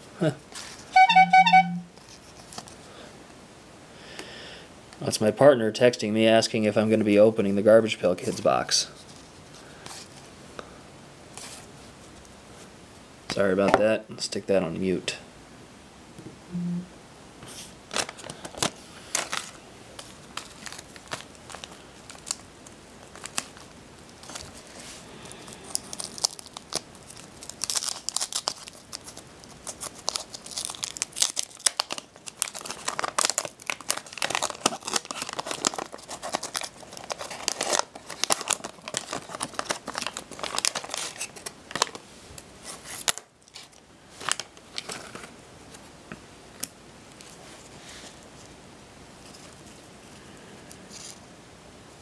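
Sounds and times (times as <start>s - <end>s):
wax paper wrapper crinkling: 17.9s - 42.0s, 42.6s - 45.8s.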